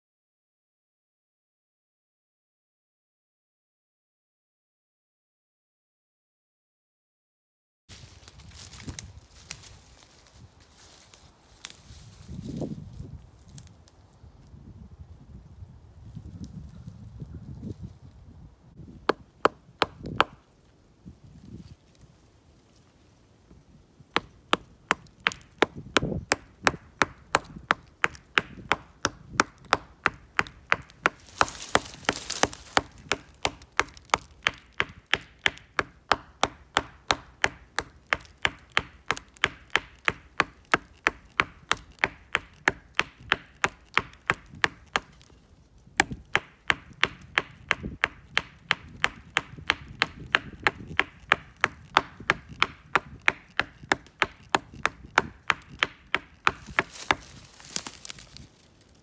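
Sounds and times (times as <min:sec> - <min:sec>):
stone axe chopping wood: 0:18.9 - 0:20.4, 0:24.1 - 0:45.3, 0:46.0 - 0:58.4.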